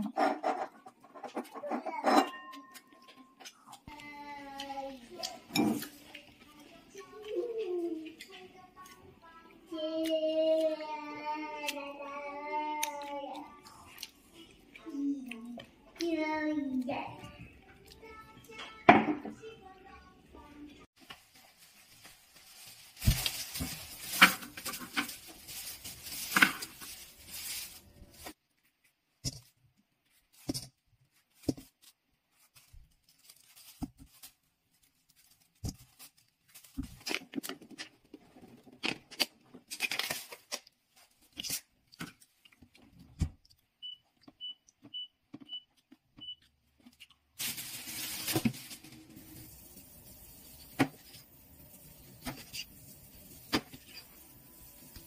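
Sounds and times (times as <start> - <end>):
plastic bag rustling: 21.0 - 28.8, 30.1 - 41.6, 47.4 - 55.0.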